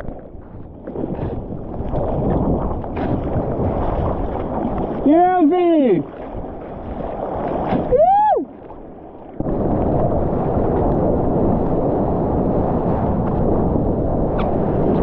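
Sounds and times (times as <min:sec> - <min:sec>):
seawater sloshing and splashing: 0:00.0 - 0:11.9
wind buffeting microphone: 0:00.0 - 0:15.0
person whooping: 0:07.9 - 0:08.5.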